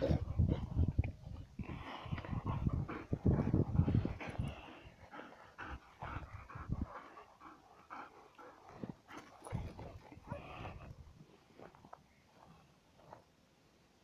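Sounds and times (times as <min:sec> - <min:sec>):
dog panting: 0:01.6 - 0:10.9.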